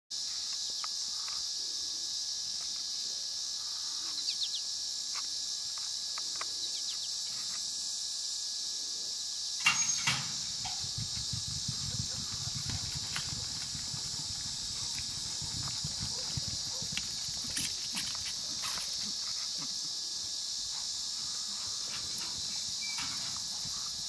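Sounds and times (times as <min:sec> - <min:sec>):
crickets chirring: 0:00.1 - 0:24.0
metal gate clatter: 0:09.6 - 0:10.9, 0:22.1 - 0:23.4
hoofbeats on dirt: 0:10.3 - 0:19.4, 0:21.7 - 0:24.0.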